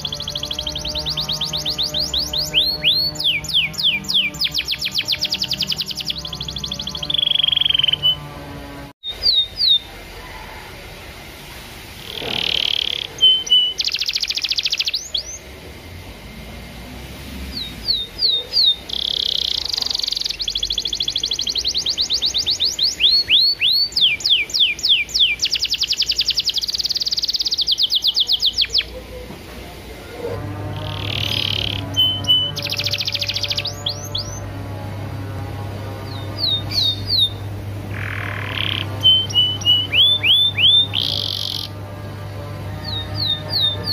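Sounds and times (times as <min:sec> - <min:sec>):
canary singing: 0:00.0 - 0:10.4, 0:12.0 - 0:15.6, 0:17.2 - 0:29.2, 0:30.0 - 0:43.9.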